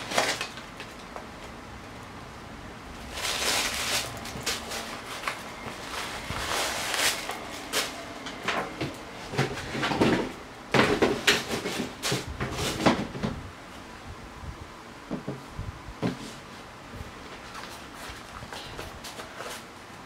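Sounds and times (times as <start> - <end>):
cardboard rustling: 0.0 - 1.5, 3.0 - 8.1.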